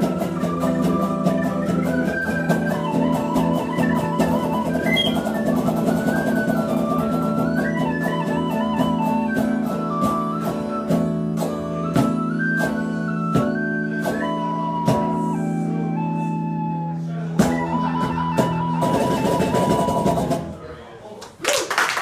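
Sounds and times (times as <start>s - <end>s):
strummed electric guitar: 0.0s - 15.9s
tin whistle melody: 0.0s - 20.4s.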